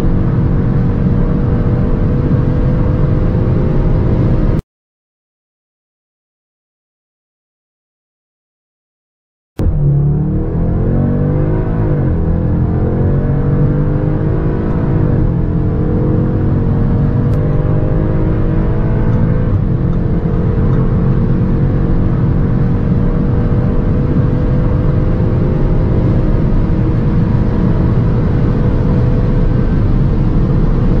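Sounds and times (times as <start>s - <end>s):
car engine accelerating: 0.0s - 4.6s, 9.6s - 31.0s.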